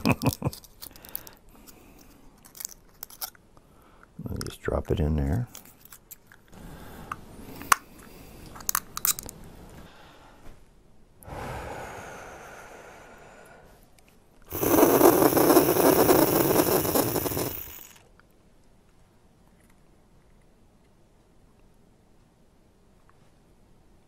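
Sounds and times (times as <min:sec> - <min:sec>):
breath out: 0:00.8 - 0:02.2, 0:11.2 - 0:13.8
deep inhalation through inhaler: 0:11.2 - 0:13.8, 0:14.5 - 0:18.0.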